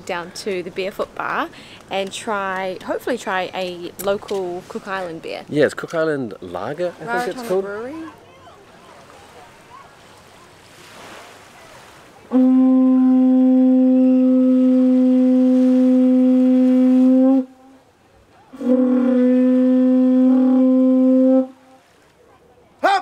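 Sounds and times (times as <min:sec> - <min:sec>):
conch shell trumpet blasts: 0:12.3 - 0:17.8, 0:18.5 - 0:21.9.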